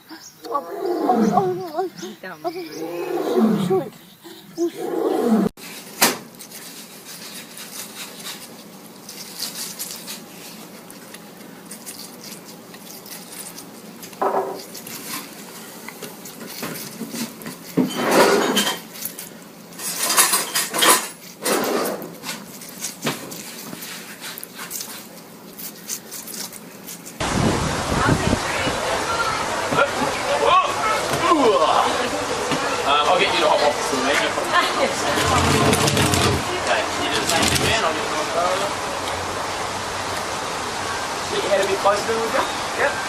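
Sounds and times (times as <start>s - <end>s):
guinea pigs crunching watermelon: 5.6s - 27.2s, 29.2s - 39.2s.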